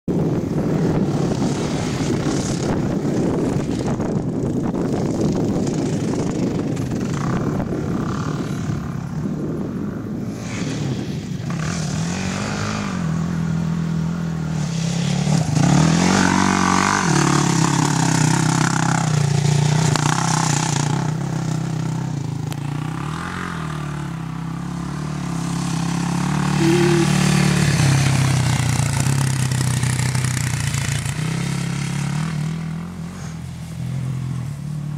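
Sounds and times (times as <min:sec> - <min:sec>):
quad engine revving: 0:14.5 - 0:22.0, 0:24.8 - 0:33.2.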